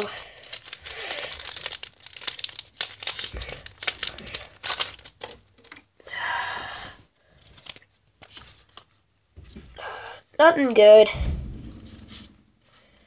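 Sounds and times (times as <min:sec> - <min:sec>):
foil wrapper tearing and crinkling: 0:00.0 - 0:05.4, 0:07.3 - 0:08.9.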